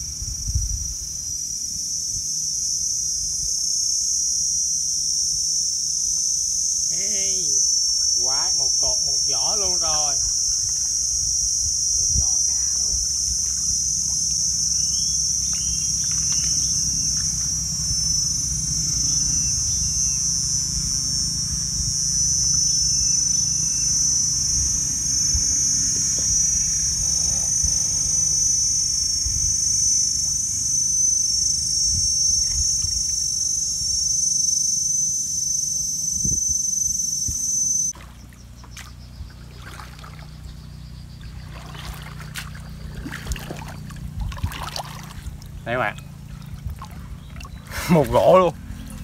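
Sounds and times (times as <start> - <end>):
insects buzzing: 0.0 - 49.0
low rumble: 7.2 - 34.0, 37.3 - 49.0.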